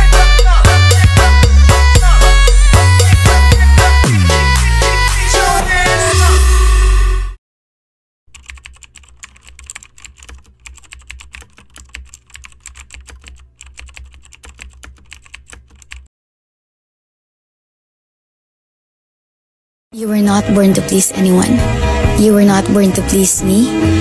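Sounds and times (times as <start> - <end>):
background music: 0.0 - 7.4, 20.0 - 24.0
computer keyboard typing: 8.3 - 16.1.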